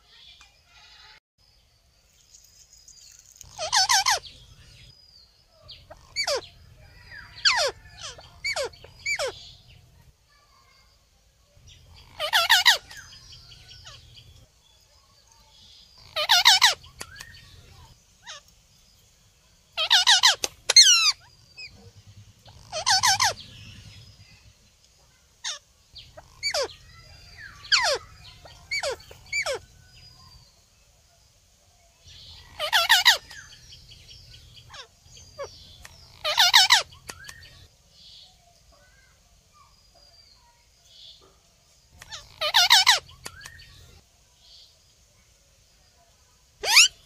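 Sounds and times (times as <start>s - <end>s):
parakeets screeching: 3.4s - 4.9s, 5.7s - 9.9s, 11.7s - 14.3s, 16.0s - 18.5s, 19.8s - 24.4s, 25.4s - 30.4s, 32.1s - 37.7s, 42.0s - 44.0s, 46.6s - 47.0s.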